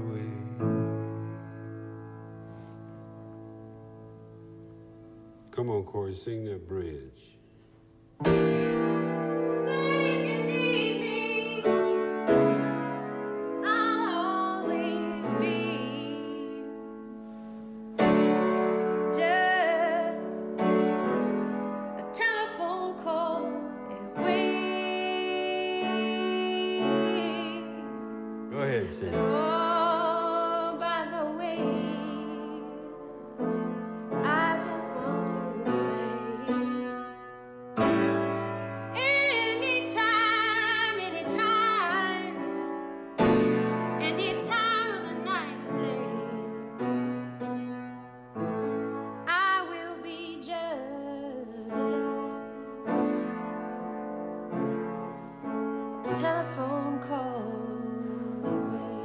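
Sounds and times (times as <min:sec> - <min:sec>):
piano chords: 0:00.0 - 0:59.0
woman singing with vibrato: 0:09.5 - 0:12.1, 0:13.6 - 0:16.9, 0:19.0 - 0:20.6, 0:22.0 - 0:27.8, 0:29.2 - 0:33.3, 0:34.2 - 0:36.8, 0:38.9 - 0:42.5, 0:44.0 - 0:46.6, 0:49.3 - 0:52.6, 0:56.1 - 0:59.0.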